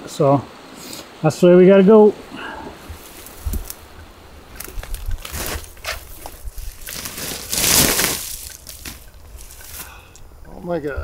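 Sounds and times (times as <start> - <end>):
footsteps through brush and gravel: 2.8 - 10.0.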